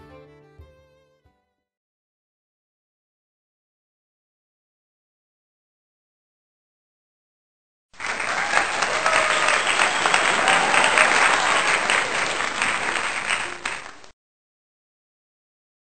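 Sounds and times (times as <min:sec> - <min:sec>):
crowd applauding: 0:08.0 - 0:14.1
voices in crowd: 0:08.0 - 0:14.1.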